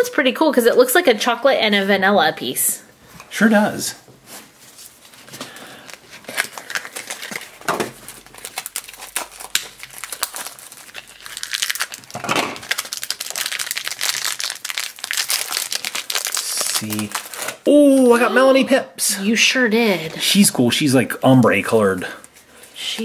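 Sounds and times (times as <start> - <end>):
plastic bag crinkling and tearing: 4.9 - 17.7.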